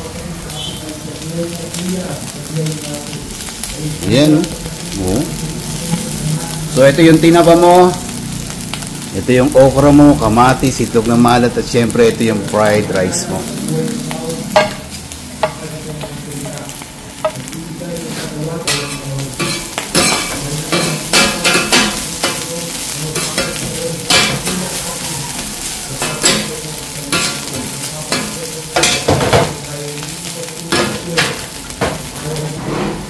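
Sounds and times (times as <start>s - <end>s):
rice sizzling on griddle: 0.0s - 33.0s
metal spatulas scraping griddle: 32.5s - 33.0s.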